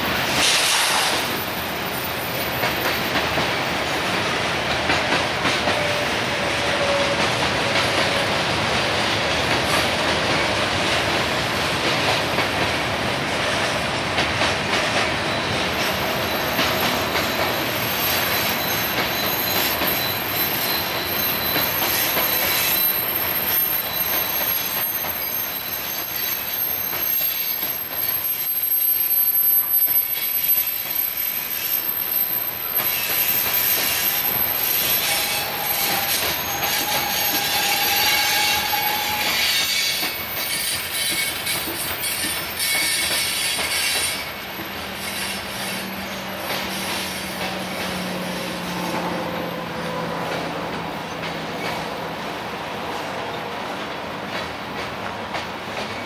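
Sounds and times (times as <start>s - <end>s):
train wheels rumbling on rails: 0.0s - 56.0s
high-pitched wheel squeal: 5.6s - 7.4s, 15.2s - 50.1s.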